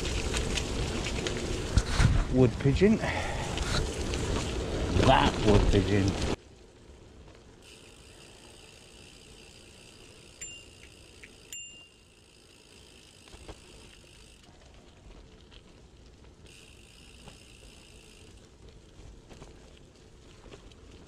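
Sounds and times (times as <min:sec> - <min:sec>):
bike tyres rumbling on gravel: 0:00.0 - 0:21.0
freewheel buzzing: 0:07.6 - 0:14.5, 0:16.4 - 0:18.6.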